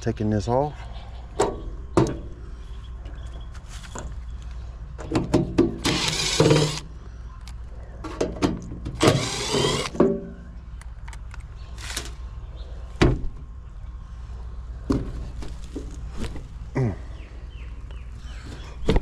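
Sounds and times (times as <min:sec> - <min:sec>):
impact driver running: 0:05.8 - 0:06.9, 0:09.0 - 0:10.0.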